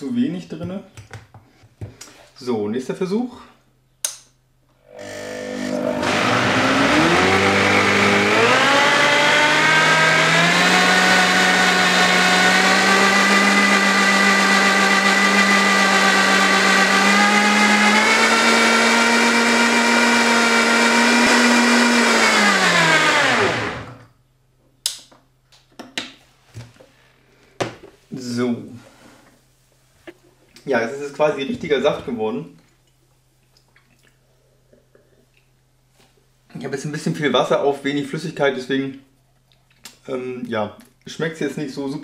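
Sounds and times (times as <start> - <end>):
blender motor running: 4.8 - 24.1.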